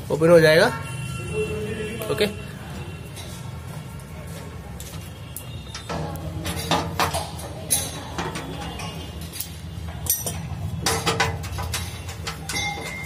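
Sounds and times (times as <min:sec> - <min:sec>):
spanner clicking on bolts: 0:05.8 - 0:13.0.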